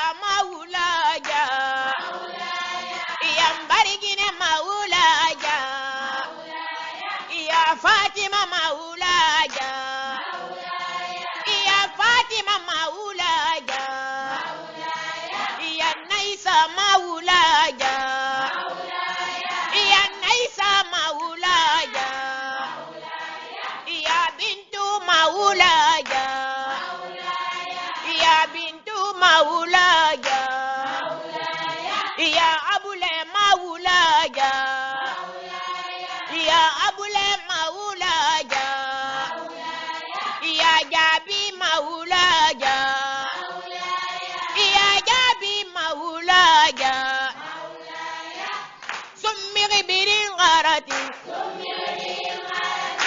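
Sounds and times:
high voices chanting: 1.2s - 3.7s, 4.9s - 7.7s, 9.0s - 12.0s, 13.2s - 16.2s, 17.3s - 20.6s, 21.2s - 24.2s, 25.0s - 28.8s, 29.8s - 32.6s, 33.9s - 37.3s, 38.3s - 41.0s, 42.1s - 45.3s, 46.7s - 49.1s, 50.8s - 53.0s.

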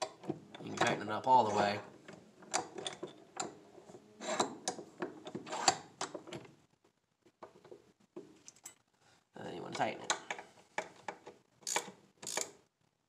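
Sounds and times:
socket wrench clicking: 11.6s - 12.6s.

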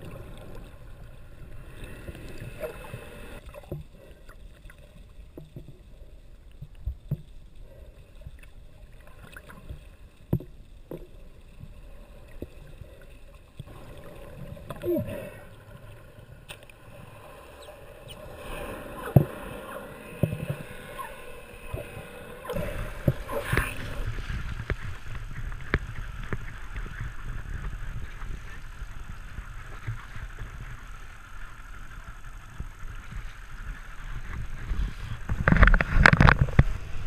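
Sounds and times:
water splashing: 0.0s - 5.7s, 8.4s - 30.7s
muffled underwater sound: 0.0s - 37.0s
wind: 0.0s - 37.0s
boat engine rumble: 9.8s - 37.0s
underwater clicks: 17.5s - 27.8s, 35.2s - 36.8s.

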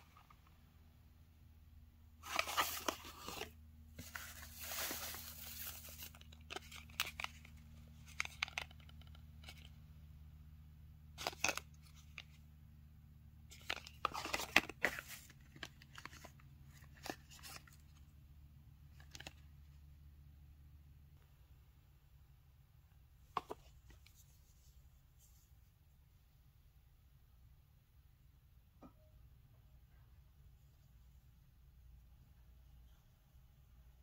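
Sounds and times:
cardboard and paper rustling: 2.2s - 9.7s, 11.2s - 12.4s, 13.5s - 17.9s.

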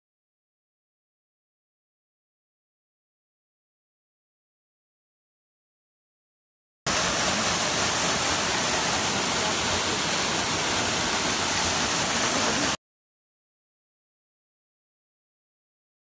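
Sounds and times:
waterfall rushing: 6.9s - 12.8s.

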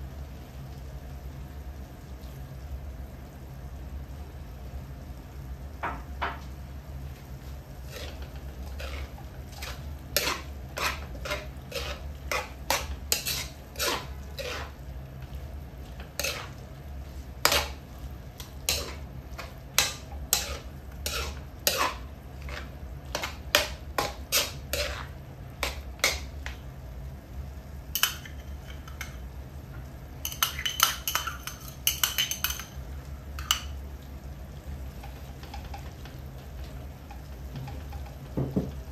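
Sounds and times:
ladle scraping a wok: 7.4s - 26.6s.

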